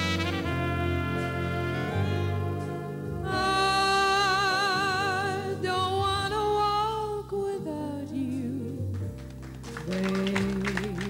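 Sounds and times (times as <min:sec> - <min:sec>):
big band playing: 0:00.0 - 0:06.6
woman singing with vibrato: 0:03.2 - 0:08.8, 0:09.8 - 0:11.0.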